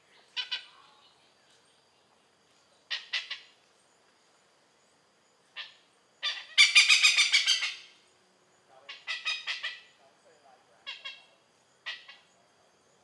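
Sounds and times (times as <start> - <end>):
hornbill calling harsh notes: 6.2 - 8.0.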